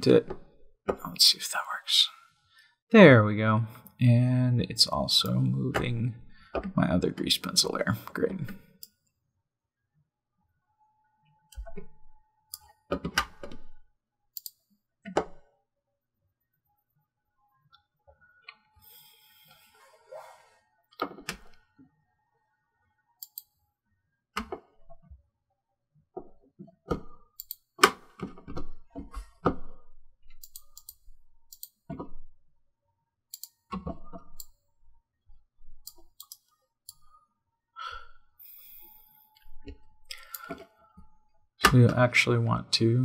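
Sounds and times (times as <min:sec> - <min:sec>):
computer mouse clicks: 0:14.4 - 0:15.3, 0:23.2 - 0:23.5, 0:27.4 - 0:27.7, 0:30.4 - 0:31.8, 0:33.3 - 0:34.5, 0:35.8 - 0:37.1.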